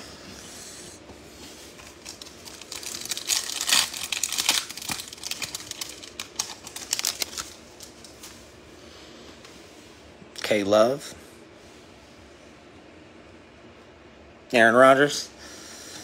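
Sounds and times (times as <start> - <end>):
trading cards crinkling and rustling: 1.7 - 8.4.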